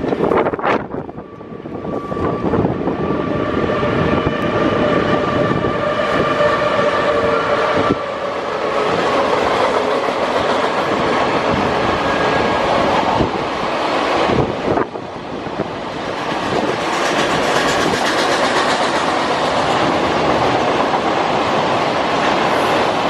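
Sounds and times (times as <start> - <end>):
freight train rumbling past: 0.0 - 23.0
wheels clattering on rails: 8.4 - 23.0.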